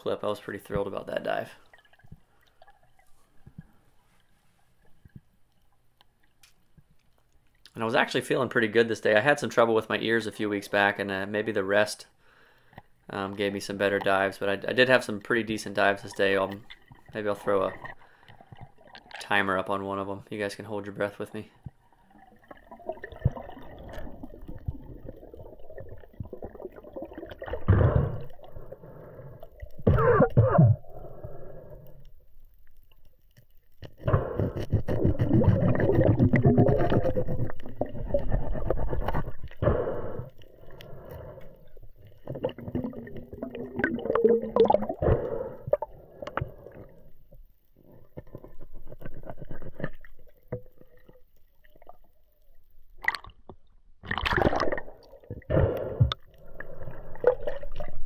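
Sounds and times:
underwater gurgling and knocking: 0:21.7 - 0:28.8, 0:33.8 - 0:40.4, 0:41.8 - 0:47.0, 0:53.0 - 0:58.0.

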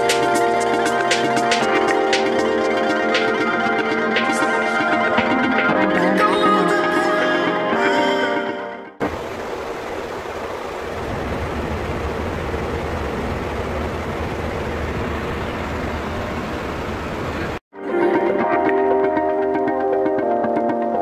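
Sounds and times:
airflow and engine noise: 0:09.0 - 0:17.6
low hum: 0:09.0 - 0:17.6.

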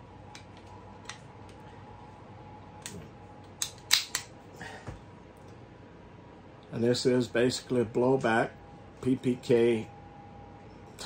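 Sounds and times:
pistol slide clicks: 0:03.6 - 0:04.3.

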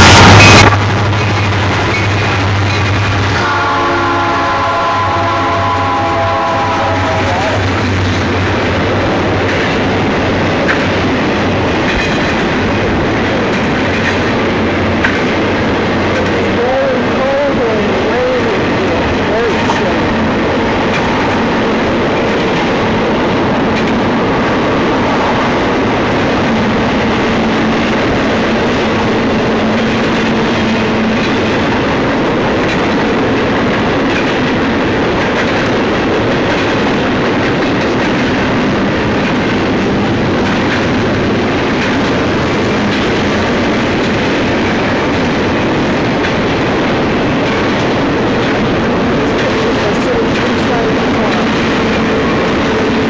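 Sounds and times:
steel wheels rumbling on rail: 0:00.0 - 0:53.0.

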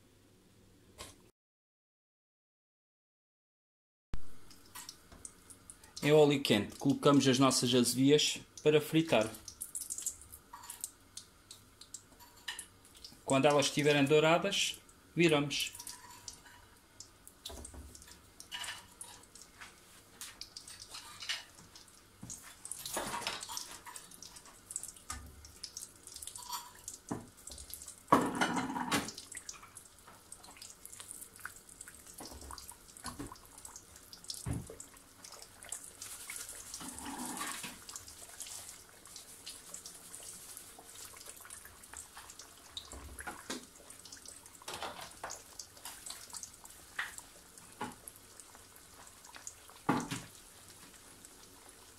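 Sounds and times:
pastries sizzling in hot oil: 0:04.4 - 0:51.9
spatula turning food in oil: 0:15.7 - 0:51.9.

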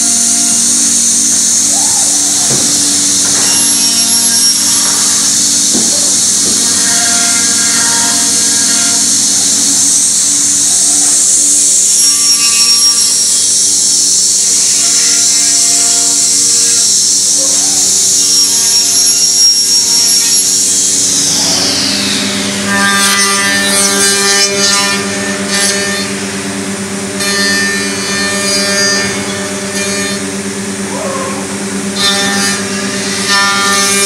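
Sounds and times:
low machine hum: 0:00.0 - 0:12.0, 0:13.0 - 0:34.0
hiss of the cut: 0:00.0 - 0:24.1
router spindle whine cutting wood: 0:00.0 - 0:34.0.

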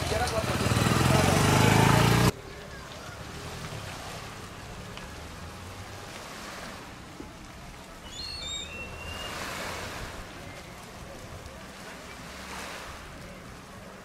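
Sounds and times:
small waves washing on beach: 0:00.0 - 0:14.0
bird chirping: 0:08.0 - 0:09.5.

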